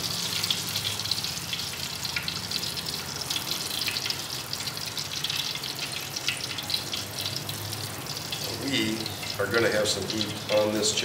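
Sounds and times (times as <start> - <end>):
food deep-frying in oil: 0.0 - 11.0.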